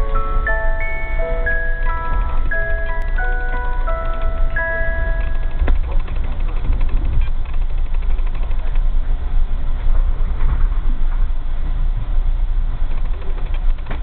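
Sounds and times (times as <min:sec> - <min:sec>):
train coach rumbling on rails: 0:00.0 - 0:14.0.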